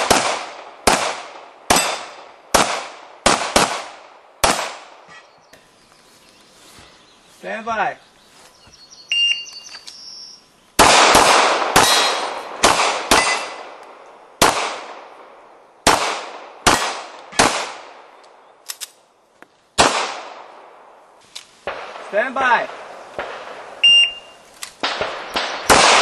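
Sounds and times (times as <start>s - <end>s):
echoing gunshots: 0.0s - 5.1s, 10.8s - 18.1s, 19.8s - 21.0s, 21.6s - 26.0s
electronic start beep: 9.1s - 10.3s, 23.8s - 24.3s.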